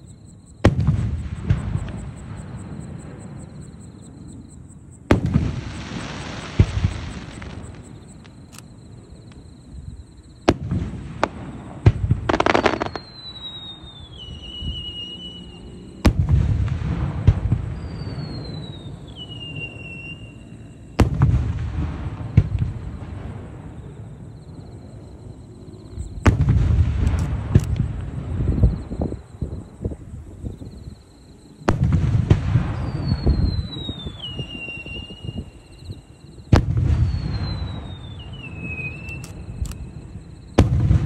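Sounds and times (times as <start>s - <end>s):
firework booms with echo: 0.6s - 3.4s, 5.1s - 8.3s, 10.4s - 15.1s, 16.0s - 19.7s, 21.0s - 23.8s, 26.0s - 29.0s, 31.7s - 35.4s, 36.5s - 39.6s, 40.6s - 41.0s
falling firework whistles: 5.1s - 25.1s, 31.6s - 41.0s
hissing crackle: 5.2s - 9.5s.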